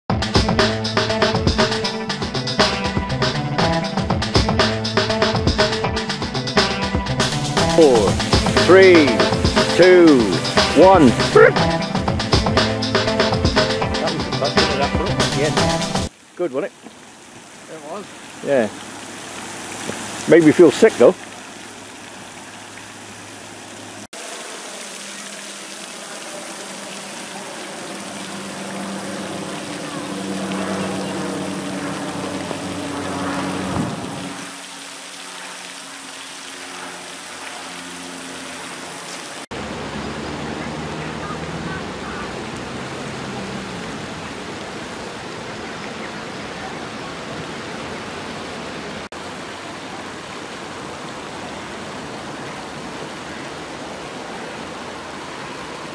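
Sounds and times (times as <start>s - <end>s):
fountain water splashing: 7.1s - 55.9s
low hum: 25.9s - 34.6s.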